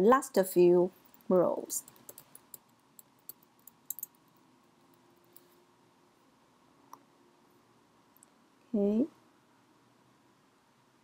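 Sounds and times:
keyboard typing clicks: 0:01.8 - 0:04.2.

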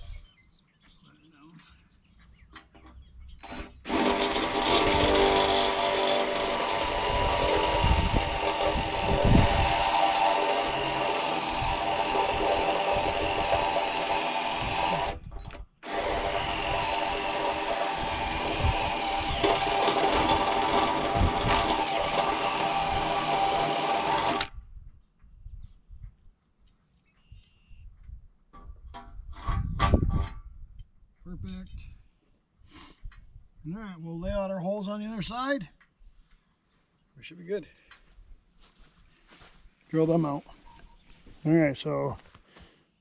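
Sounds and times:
power drill boring metal: 0:03.4 - 0:24.5.

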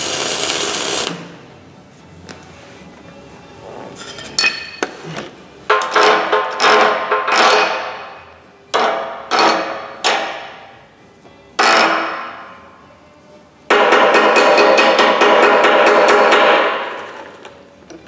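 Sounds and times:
hammer striking ringing steel: 0:13.7 - 0:17.1.

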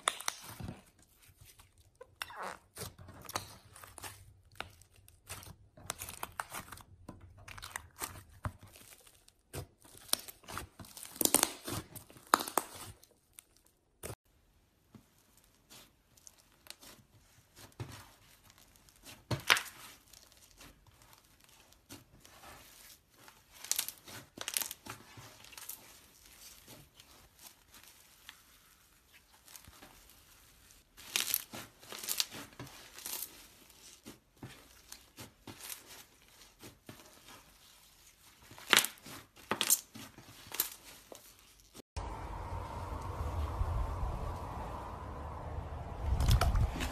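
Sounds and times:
slime crackling and popping: 0:00.0 - 0:00.6, 0:07.4 - 0:13.0.

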